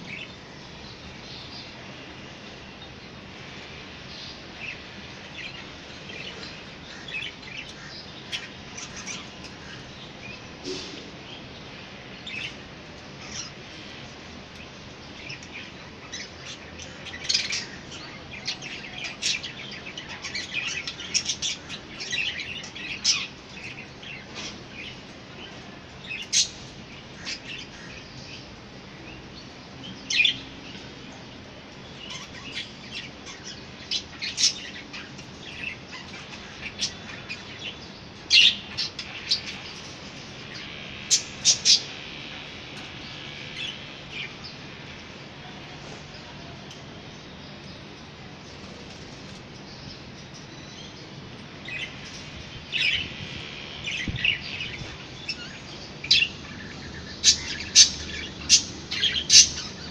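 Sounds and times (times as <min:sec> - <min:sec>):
budgerigars chirping: 0:52.8 - 0:59.9.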